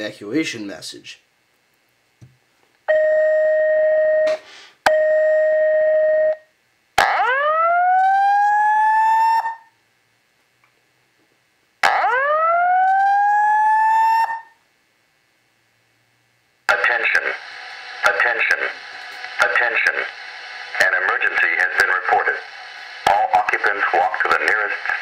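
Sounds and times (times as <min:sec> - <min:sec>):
steady alarm beeps: 0:02.9 - 0:06.4
rising whoop alarm tones: 0:07.0 - 0:09.7, 0:11.8 - 0:14.6.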